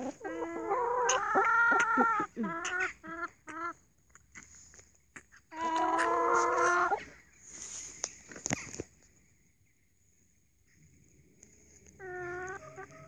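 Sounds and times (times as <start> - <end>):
hens calling: 0.0 - 4.5, 5.1 - 7.2, 11.8 - 13.0.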